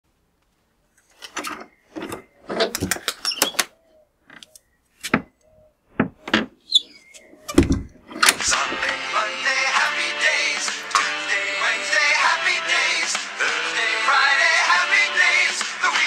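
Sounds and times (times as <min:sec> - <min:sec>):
door squeaking: 0:01.3 - 0:08.9.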